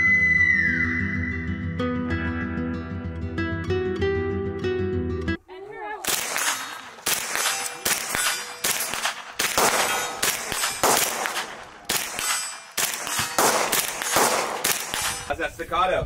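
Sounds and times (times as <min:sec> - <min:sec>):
rifle shots with metallic ring: 0:06.1 - 0:15.4.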